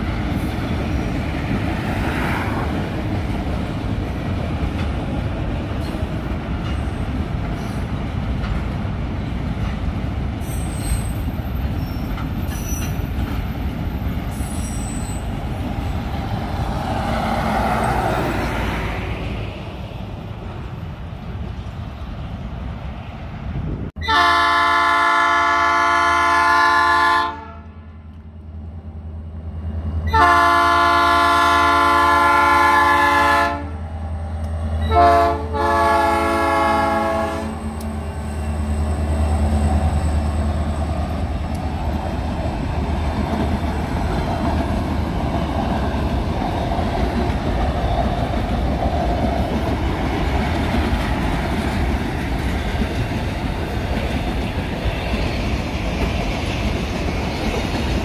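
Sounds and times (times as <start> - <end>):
train wheels clacking on rails: 0.0 - 18.8, 36.5 - 58.0
locomotive horn: 24.0 - 27.9, 30.1 - 33.8, 34.8 - 37.8
locomotive engine: 31.9 - 58.0.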